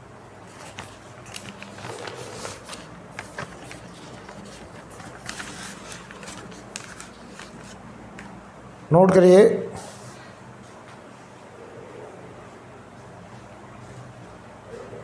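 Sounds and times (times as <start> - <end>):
paper rustling: 0.4 - 8.3.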